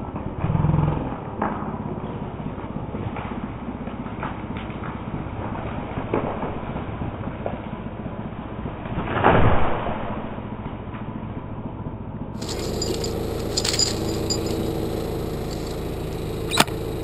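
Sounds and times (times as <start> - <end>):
engine idling: 11.4 - 17.0.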